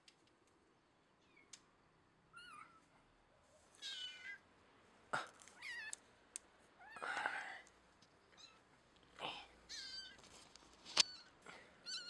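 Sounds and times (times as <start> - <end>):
kitten meowing: 9.7 - 10.2, 11.0 - 12.0.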